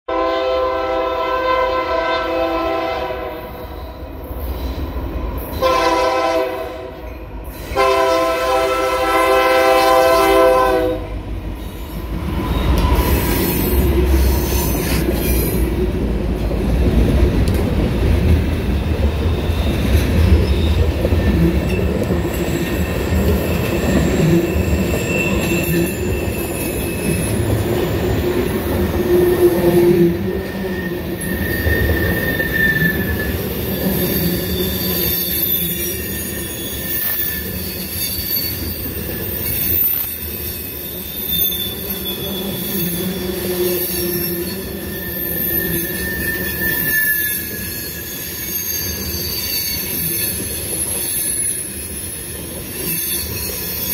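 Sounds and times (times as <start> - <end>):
train horn chord: 0.1 - 3.6, 5.6 - 7.0, 7.8 - 11.2
rail noise: 0.1 - 53.9
faint wheel squeal: 30.5 - 51.7.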